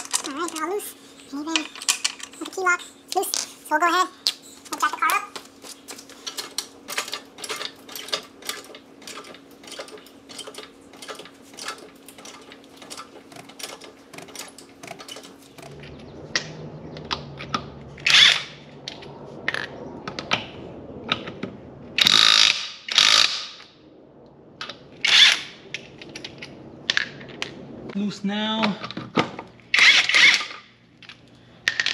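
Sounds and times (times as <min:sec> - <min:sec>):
floor jack pumping and clicking: 0:04.6 - 0:15.7.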